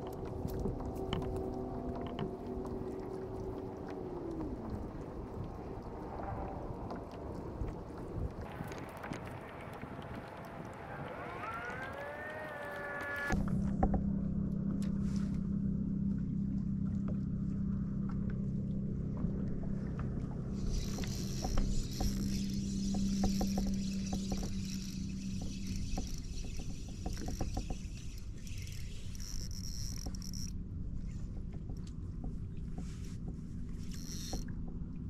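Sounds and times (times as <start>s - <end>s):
fishing reel clicks: 27.3s - 30.5s, 33.9s - 34.4s.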